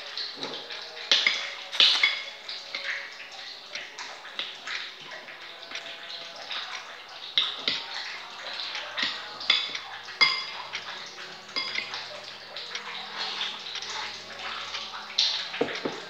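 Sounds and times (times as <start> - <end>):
wet eating and slurping: 0.0 - 16.0
metal spoon clinking on ceramic bowl: 9.0 - 10.8.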